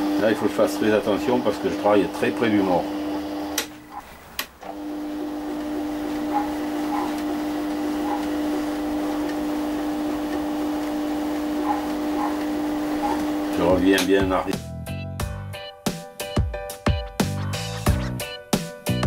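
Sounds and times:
lathe motor whine: 0.0s - 3.7s, 4.6s - 13.8s.

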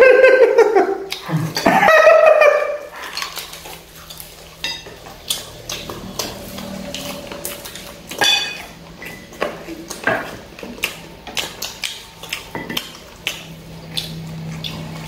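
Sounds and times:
plates clinking: 7.0s - 10.4s.

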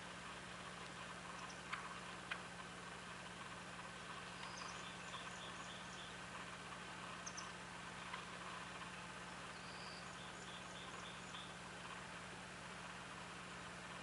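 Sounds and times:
steady low hum: 0.0s - 14.0s
songbird singing high notes: 9.5s - 11.6s.

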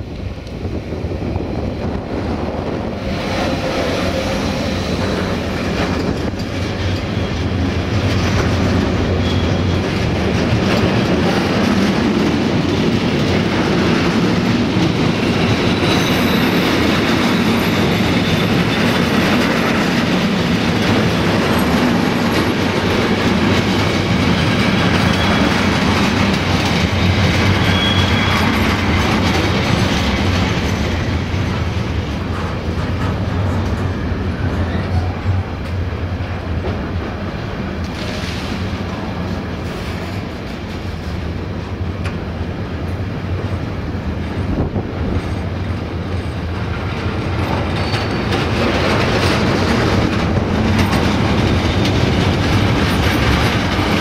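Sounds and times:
freight train rolling past: 0.0s - 54.0s
high wheel squeals: 9.1s - 9.8s, 15.3s - 19.1s, 24.9s - 25.8s, 27.3s - 28.9s
wagon wheels clattering on rails: 46.8s - 54.0s.

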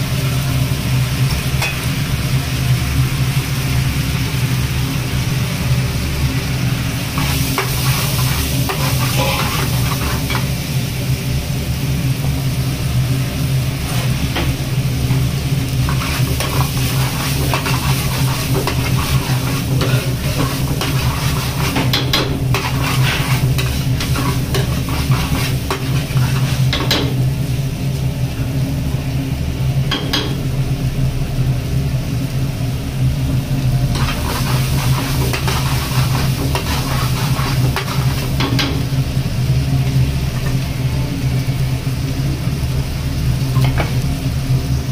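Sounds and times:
gravy sizzling: 0.0s - 44.9s
ladle scraping metal pan: 7.2s - 10.2s, 15.9s - 26.9s.

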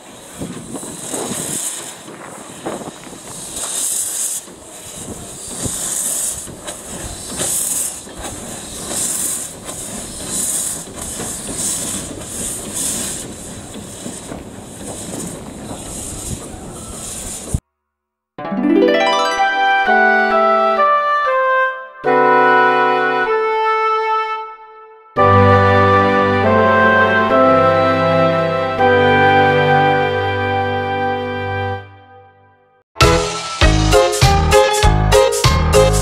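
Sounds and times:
steam engine chuffing: 0.0s - 17.6s.

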